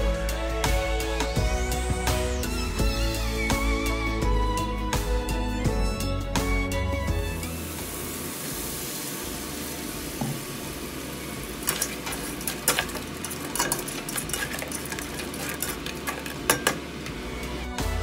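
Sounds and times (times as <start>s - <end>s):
food sizzling in a frying pan: 7.3s - 17.3s
utensil scraping a pan: 11.6s - 16.8s.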